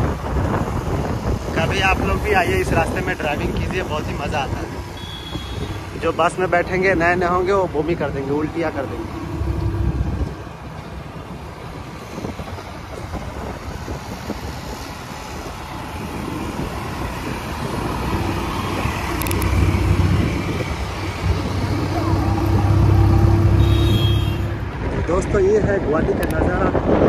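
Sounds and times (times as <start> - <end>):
road and wind noise: 0.0 - 27.0
scooter engine drone: 3.0 - 12.4, 13.2 - 24.8.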